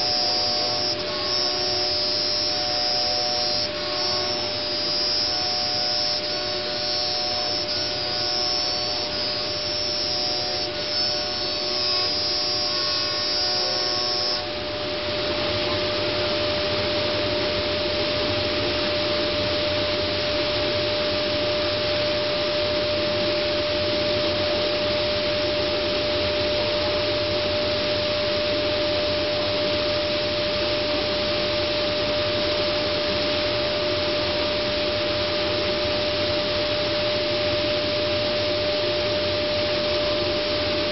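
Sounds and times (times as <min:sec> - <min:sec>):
higher whining tones: 0:00.0 - 0:25.3
router whine: 0:00.0 - 0:40.9.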